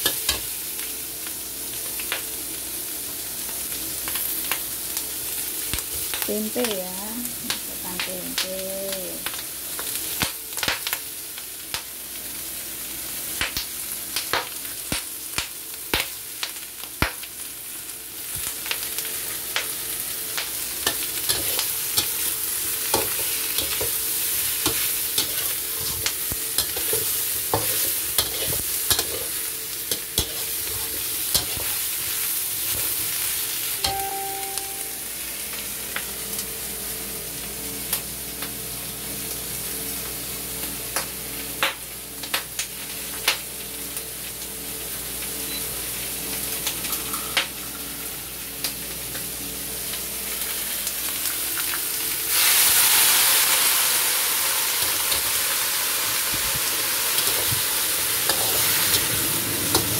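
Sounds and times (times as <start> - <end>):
vegetables sizzling in a wok: 0.0 - 59.9
spatula scraping a pan: 26.6 - 31.8
brief ringing tone: 33.8 - 35.1.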